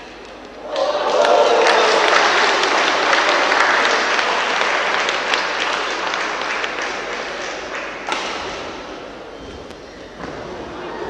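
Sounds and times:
spectators applauding: 0:00.6 - 0:08.1.

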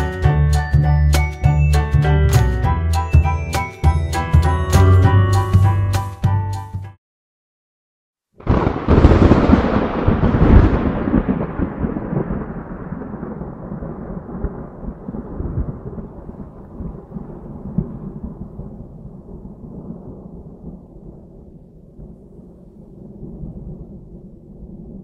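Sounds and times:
thunder rumbling: 0:08.4 - 0:25.0.

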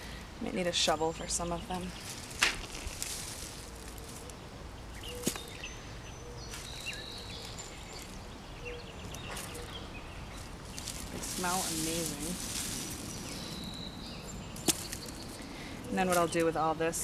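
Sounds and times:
rustling of plants: 0:00.0 - 0:17.0
faint high bird chirps: 0:04.9 - 0:10.9.

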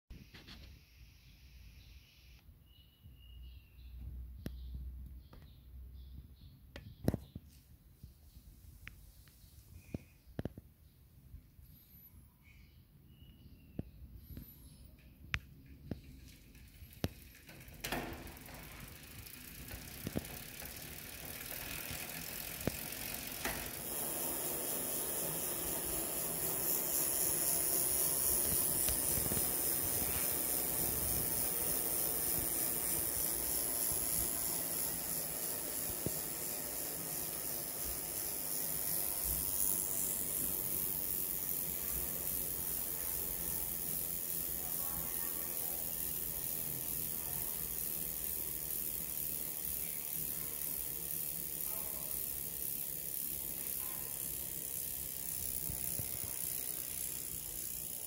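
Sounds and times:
bicycle hub freewheel ticking: 0:14.4 - 0:58.0.

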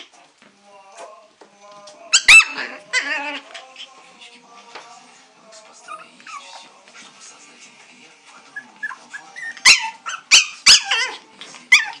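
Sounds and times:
puppies yipping and yelping: 0:02.1 - 0:04.0, 0:05.8 - 0:06.7, 0:08.4 - 0:12.0.

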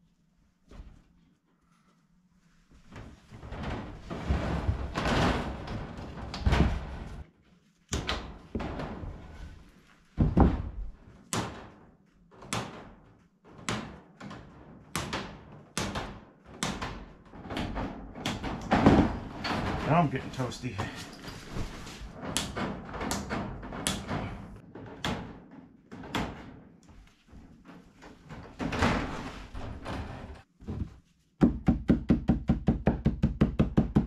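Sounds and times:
wire mesh rustling and scraping: 0:03.3 - 0:07.2
hammer striking wooden frame: 0:10.2 - 0:11.8, 0:12.4 - 0:13.0, 0:13.6 - 0:19.3, 0:22.3 - 0:26.5, 0:31.4 - 0:34.0.

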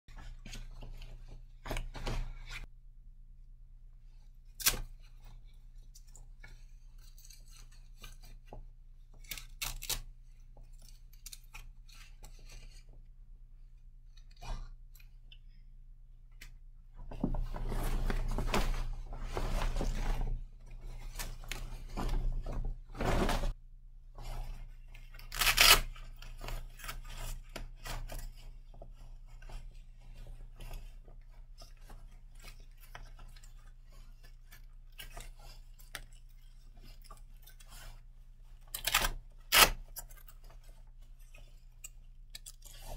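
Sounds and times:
clothing rustling: 0:00.1 - 0:02.7, 0:16.8 - 0:23.6.

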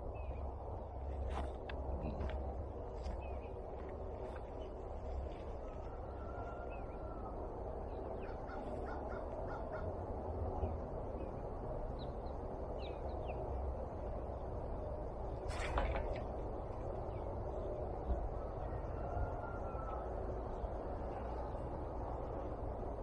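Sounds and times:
low background noise: 0:00.0 - 0:23.0
small birds chirping: 0:10.6 - 0:13.7.

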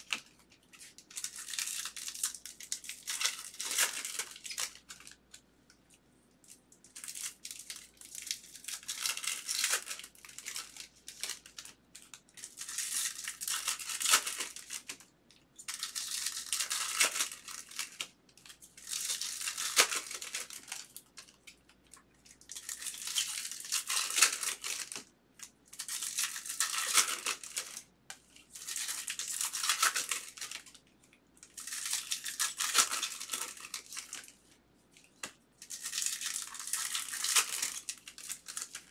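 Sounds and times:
foil wrappers tearing and crinkling: 0:00.0 - 0:05.1, 0:07.0 - 0:11.7, 0:12.4 - 0:15.0, 0:15.7 - 0:18.1, 0:18.8 - 0:21.0, 0:22.5 - 0:25.0, 0:25.7 - 0:27.8, 0:28.6 - 0:30.7, 0:31.5 - 0:34.3, 0:35.6 - 0:38.9.

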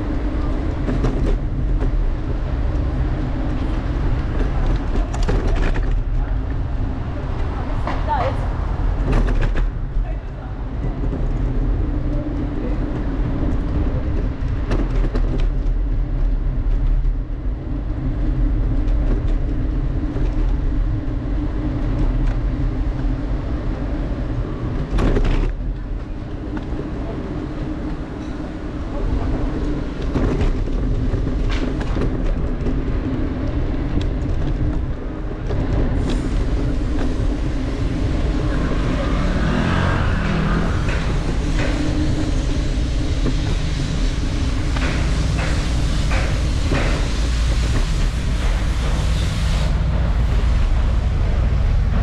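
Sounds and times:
subway train rumbling: 0:00.0 - 0:52.0.

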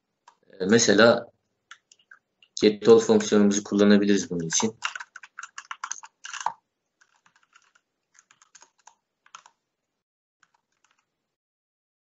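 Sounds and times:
keyboard typing: 0:04.2 - 0:09.6, 0:10.4 - 0:11.1.

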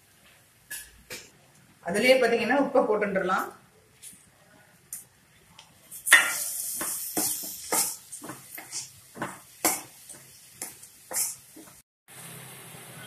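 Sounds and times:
masala sizzling: 0:04.9 - 0:13.0.

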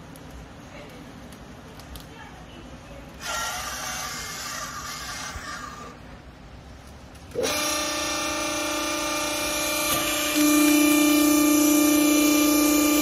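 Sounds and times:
hydraulic pump motor humming: 0:07.3 - 0:13.0.

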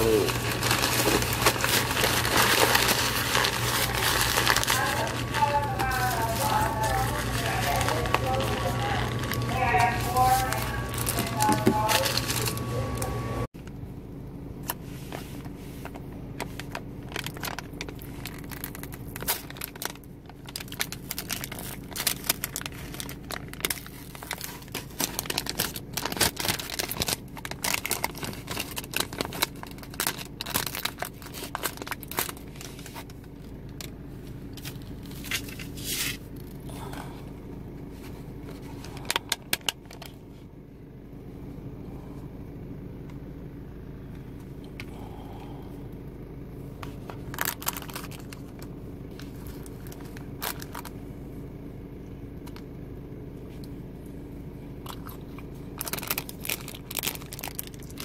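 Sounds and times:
plastic packaging crinkling: 0:00.0 - 0:13.3, 0:16.4 - 0:33.9, 0:38.4 - 0:40.2, 0:46.8 - 0:50.9, 0:55.8 - 0:58.0
steady low hum: 0:00.0 - 0:58.0.

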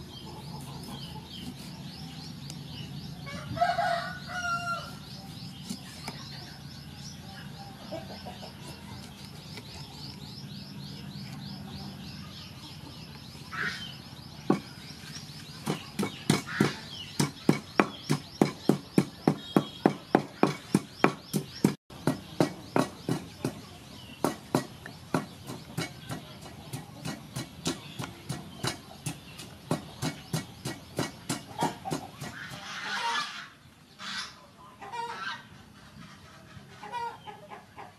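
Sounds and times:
bird chirping: 0:00.0 - 0:35.0
wooden pestle pounding in mortar: 0:14.5 - 0:14.7, 0:15.6 - 0:32.6.

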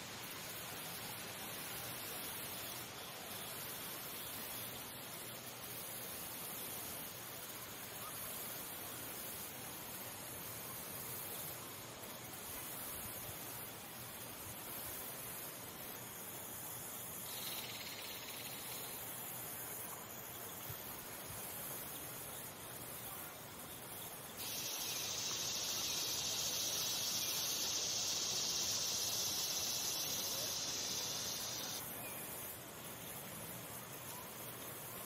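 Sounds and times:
background hiss: 0:00.0 - 0:35.0
insect trilling: 0:17.3 - 0:19.1, 0:24.4 - 0:32.6.

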